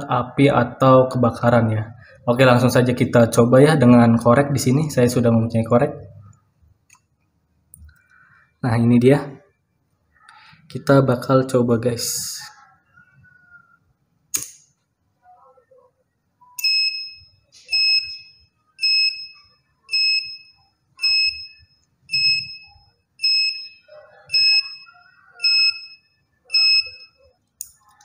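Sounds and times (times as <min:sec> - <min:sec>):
lighter click: 0:14.3 - 0:14.6
alarm buzzer beeping: 0:16.6 - 0:27.2.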